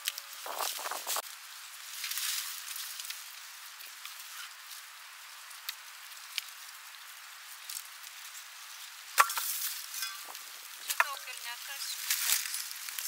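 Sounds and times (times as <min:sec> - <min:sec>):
hands scraping in soil: 0:00.4 - 0:01.2.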